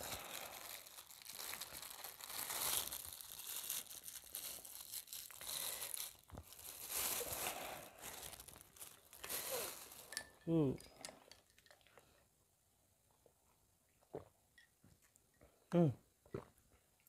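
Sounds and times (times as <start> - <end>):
plastic bags crinkling: 0.0 - 10.4.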